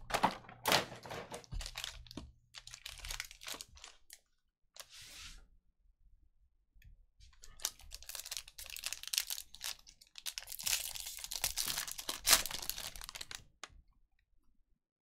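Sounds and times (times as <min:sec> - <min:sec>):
foil wrapper crinkling: 0:01.5 - 0:04.0, 0:07.4 - 0:13.5
foil tearing: 0:07.6 - 0:13.4.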